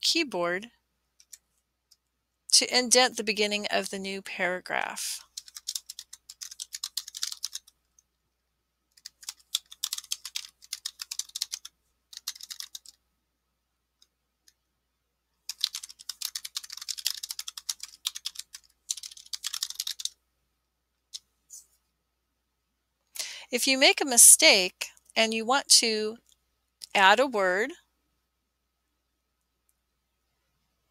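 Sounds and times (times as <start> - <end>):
keyboard typing: 1.2 - 1.4, 5.2 - 7.8, 8.9 - 13.0, 15.5 - 20.2.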